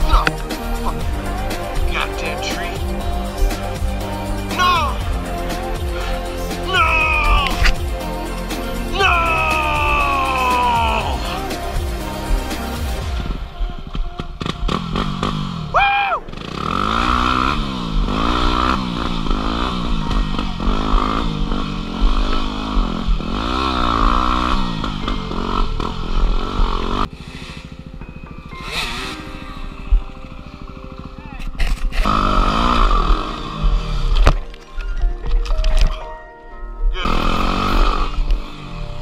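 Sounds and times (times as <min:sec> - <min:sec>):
dirt bike engine revving: 0:00.0 - 0:34.4, 0:37.0 - 0:39.0.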